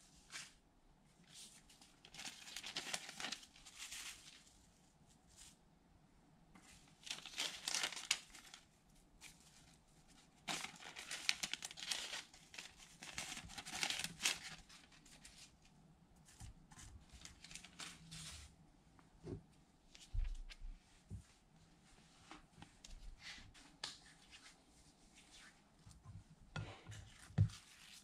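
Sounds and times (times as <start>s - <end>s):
metallic foil crinkling: 2.0s - 4.5s, 7.0s - 8.7s, 10.4s - 15.3s.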